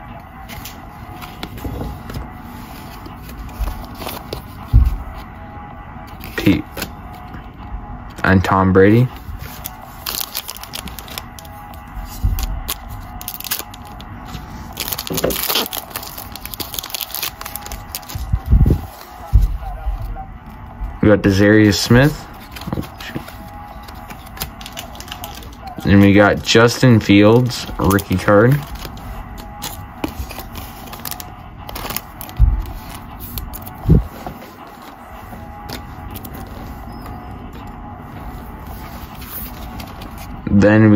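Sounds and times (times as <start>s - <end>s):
trading cards shuffled by hand: 0.5s - 5.3s, 22.4s - 26.0s
foil wrappers crinkling: 9.0s - 19.7s, 21.3s - 35.0s.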